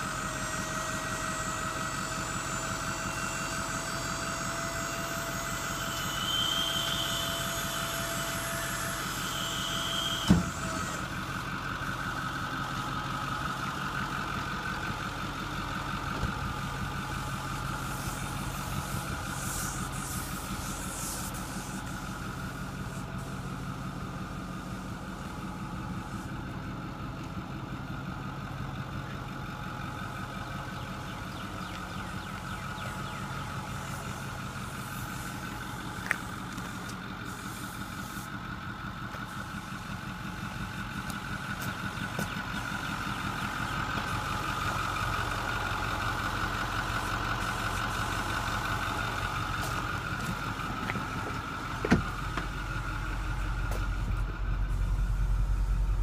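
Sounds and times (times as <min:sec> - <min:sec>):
hydraulic whine: 0:00.0 - 0:12.0, 0:16.0 - 0:27.3
diesel engine idling: 0:00.0 - 0:56.0.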